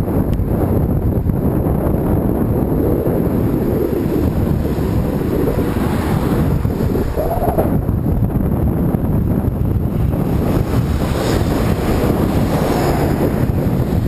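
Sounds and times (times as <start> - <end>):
wind buffeting microphone: 0.0 - 14.0
road traffic passing: 2.6 - 8.5, 9.4 - 14.0
truck passing: 3.4 - 8.2.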